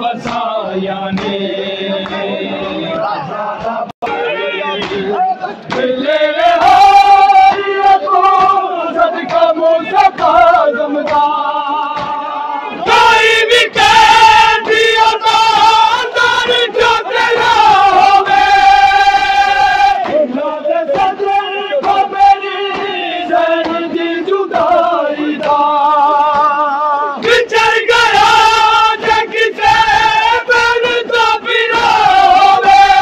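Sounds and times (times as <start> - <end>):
men chanting a lament: 0.0 - 33.0
hand slaps on chests: 0.2 - 1.4, 4.8 - 6.0, 6.6 - 12.2, 20.0 - 30.1.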